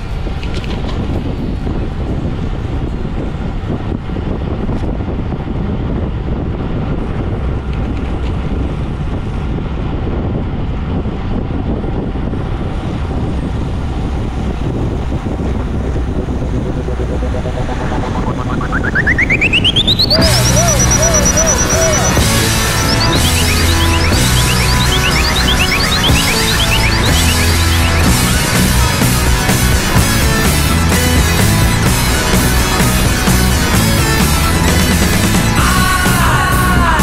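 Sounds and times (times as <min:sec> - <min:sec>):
road and engine rumble: 0:00.0 - 0:37.0
wind rushing over microphone: 0:00.0 - 0:37.0
tone sweeping upward: 0:15.6 - 0:29.4.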